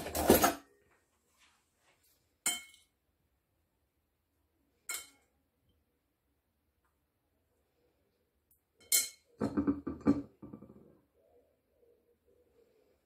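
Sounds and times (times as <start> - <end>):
metal spoon clinking on ceramic plate: 2.4 - 2.9, 4.8 - 5.3, 8.8 - 9.4.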